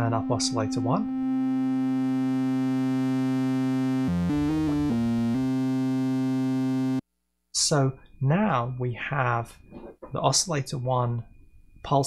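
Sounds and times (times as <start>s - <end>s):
quick synthesizer notes: 0.0s - 7.0s
synthesizer holding a bright note: 0.0s - 7.0s.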